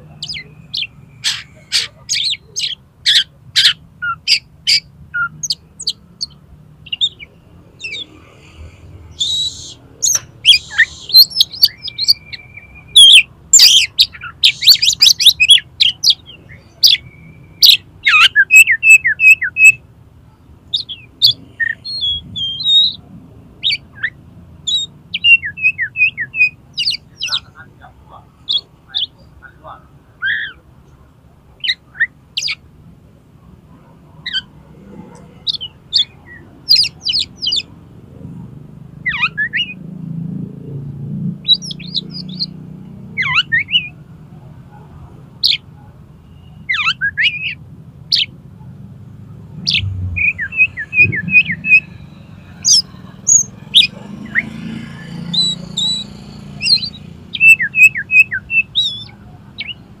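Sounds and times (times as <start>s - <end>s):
bird singing whistles: 9.1s - 19.8s, 20.8s - 23.0s, 23.6s - 27.4s, 39.1s - 39.8s, 46.2s - 48.3s, 49.6s - 52.0s, 55.3s - 59.8s.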